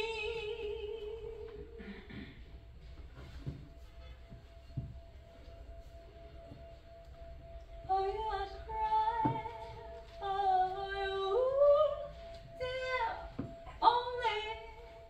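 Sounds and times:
woman singing long held notes: 0:00.0 - 0:02.2, 0:07.9 - 0:15.0.

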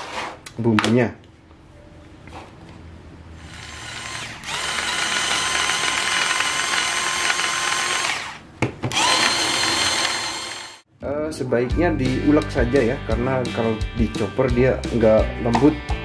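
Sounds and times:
electric mini chopper running: 0:03.5 - 0:10.8.

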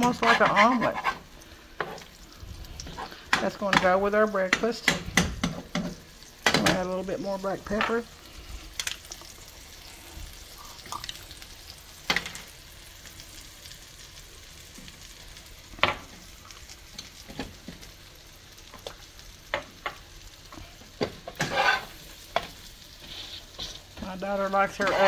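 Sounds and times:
metal spatula scraping a pan: 0:00.0 - 0:02.1, 0:21.0 - 0:25.0
eggs sizzling in a frying pan: 0:00.0 - 0:25.0.

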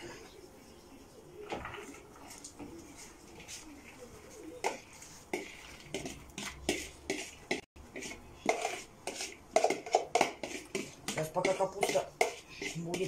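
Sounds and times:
bowl knocking and scraping pot: 0:04.6 - 0:13.0.

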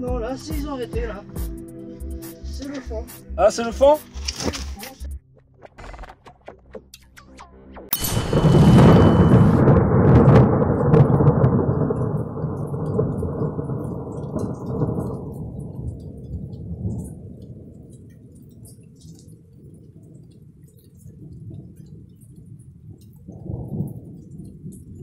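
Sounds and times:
deep rumbling explosion boom: 0:07.9 - 0:17.2.

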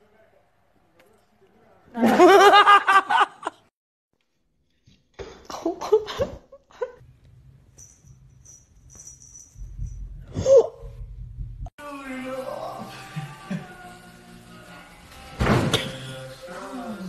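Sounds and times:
person laughing: 0:05.4 - 0:07.0.

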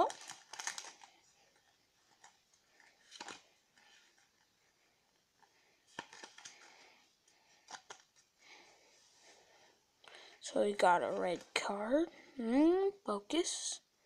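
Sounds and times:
trading cards rustling: 0:00.0 - 0:08.3.

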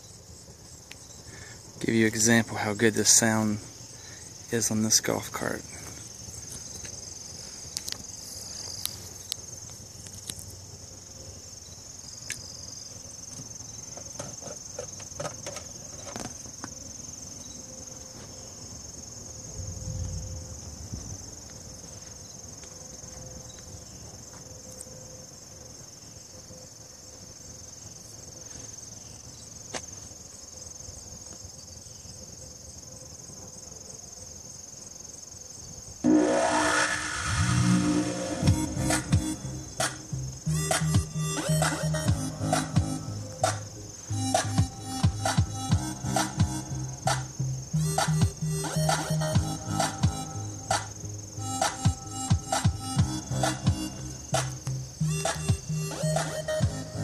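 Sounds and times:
crickets trilling: 0:00.0 - 0:57.0.

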